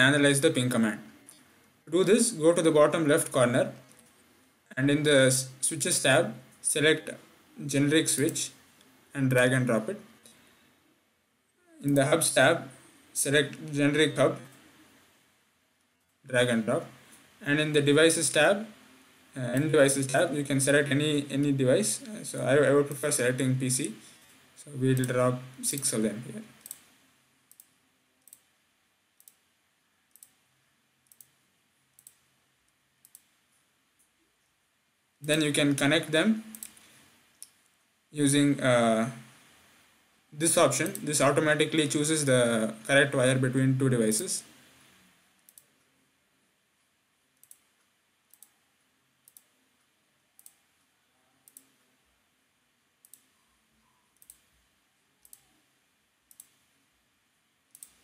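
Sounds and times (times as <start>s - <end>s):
room hiss: 0.0s - 58.0s
computer mouse clicks: 26.6s - 28.5s, 29.2s - 29.5s, 30.1s - 30.4s, 31.0s - 32.3s, 33.0s - 33.4s, 36.5s - 37.7s, 45.4s - 45.8s, 47.4s - 48.6s, 49.2s - 49.6s, 50.4s - 50.7s, 51.4s - 51.9s, 53.0s - 54.5s, 55.2s - 55.6s, 56.3s - 56.7s, 57.7s - 58.0s.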